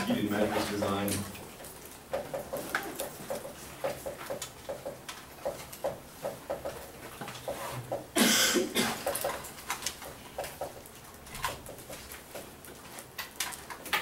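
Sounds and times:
person coughing: 8.2s - 9.1s.

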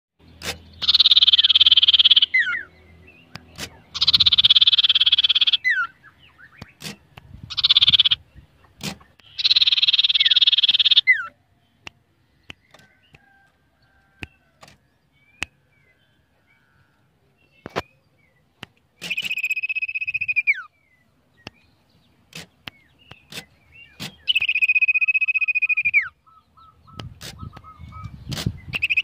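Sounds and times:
bird whistled slur: 0.4s - 2.7s, 8.8s - 11.3s, 19.0s - 20.7s, 23.1s - 29.0s
bird rattling churrs: 0.8s - 2.3s, 3.6s - 5.7s, 6.8s - 8.2s, 8.8s - 11.1s
sharp clicks: 11.8s - 13.6s, 18.6s - 20.3s, 22.3s - 25.1s.

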